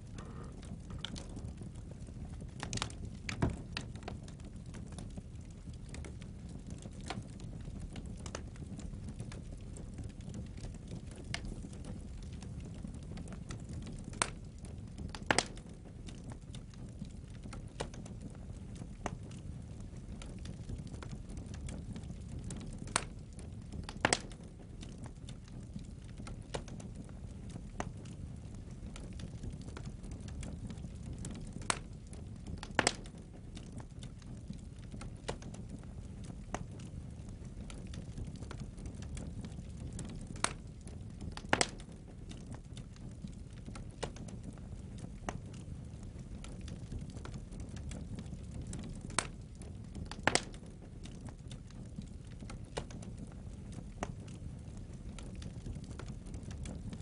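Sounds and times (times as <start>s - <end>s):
fire crackling: 0.0s - 57.0s
low rumble of flame: 0.0s - 57.0s
sharp wood pops: 32.7s - 33.1s, 41.4s - 41.8s, 50.2s - 50.5s.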